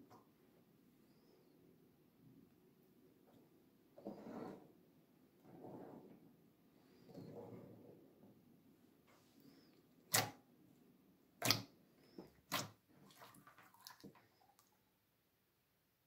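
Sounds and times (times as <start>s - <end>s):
hands handling slime: 11.4s - 14.2s.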